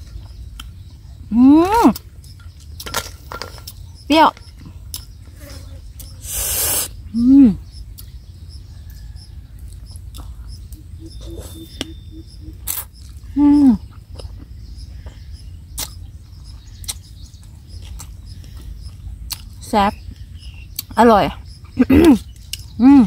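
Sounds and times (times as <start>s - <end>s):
breath hiss: 6.2s - 7.0s
chewing: 9.0s - 11.6s, 15.8s - 19.6s.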